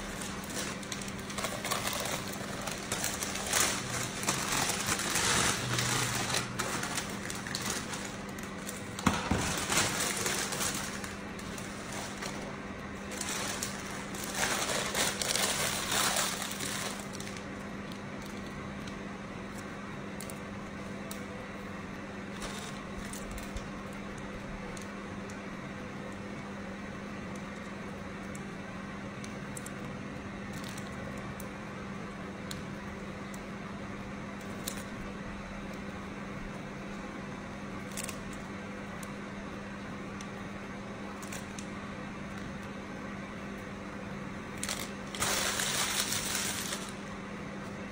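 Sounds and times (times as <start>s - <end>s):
rustling handling noises: 0.0s - 17.4s
steady low hum: 0.0s - 47.9s.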